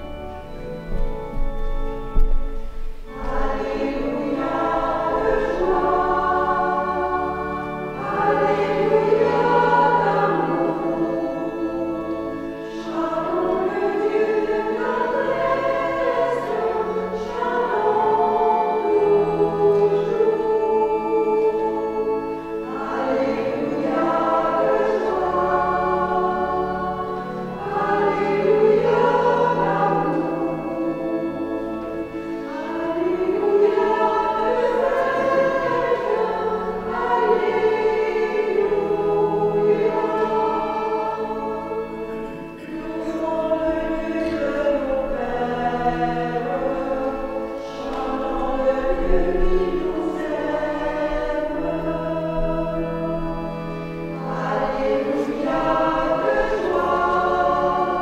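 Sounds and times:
church choir singing: 0:00.0 - 0:58.0.

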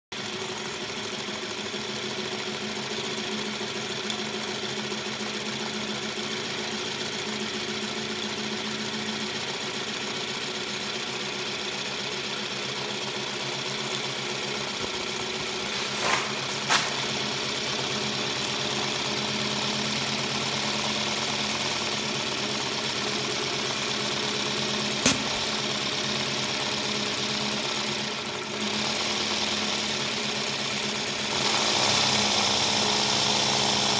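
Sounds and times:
model steam locomotive running: 0:00.2 - 0:33.9
sharp clicks: 0:25.0 - 0:25.5.

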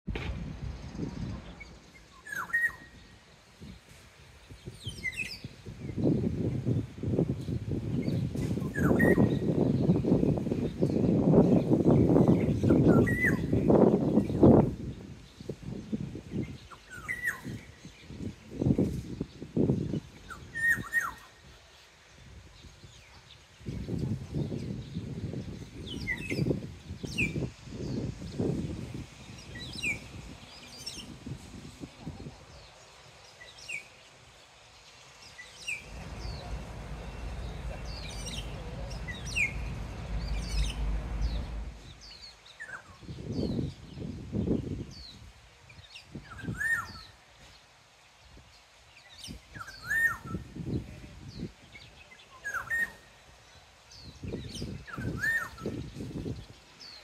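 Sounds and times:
bird whistling downward notes: 0:02.2 - 0:03.0, 0:35.6 - 0:42.8
low rumble: 0:35.8 - 0:42.3.

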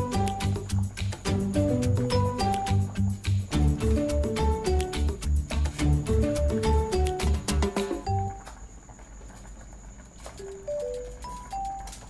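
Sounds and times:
melody of single clear notes: 0:01.5 - 0:03.0.

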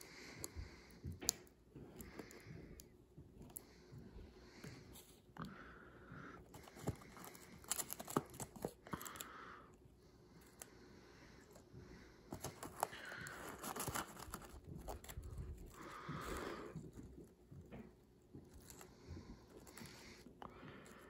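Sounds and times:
paper and card rustling: 0:06.4 - 0:09.3, 0:12.3 - 0:17.5.

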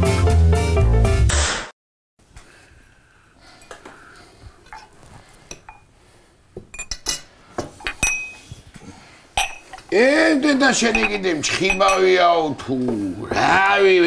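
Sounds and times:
forks clinking against plates: 0:06.7 - 0:07.3, 0:07.9 - 0:08.5, 0:09.4 - 0:09.9, 0:10.8 - 0:12.3.

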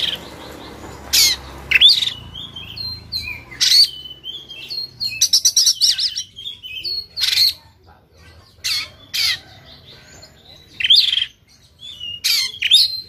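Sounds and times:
bird singing whistled notes: 0:00.0 - 0:07.5, 0:10.8 - 0:13.0
bird chattering: 0:00.0 - 0:13.0
harsh rasping bird calls: 0:00.0 - 0:13.0.

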